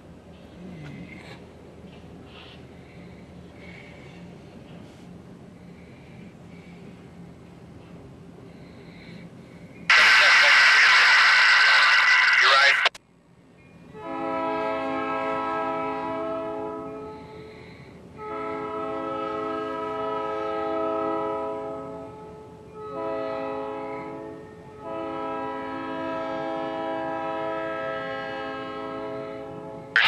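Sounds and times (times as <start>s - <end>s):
locomotive air horn blasts: 13.9s - 17.6s, 18.2s - 30.0s.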